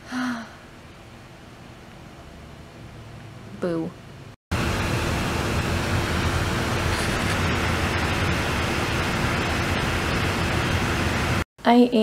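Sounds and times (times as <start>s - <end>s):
laptop fan rushing: 4.5s - 11.5s.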